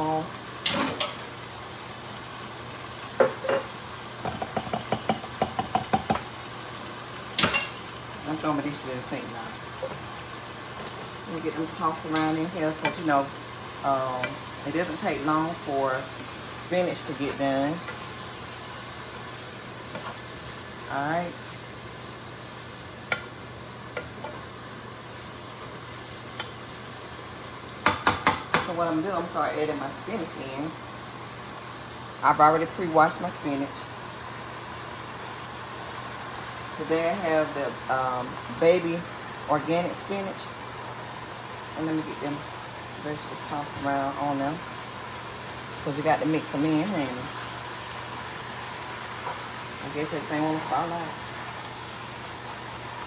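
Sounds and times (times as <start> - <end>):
vegetables sizzling in frying pan: 0.0 - 53.0
spatula knocking against pan: 4.2 - 6.3, 27.8 - 28.7.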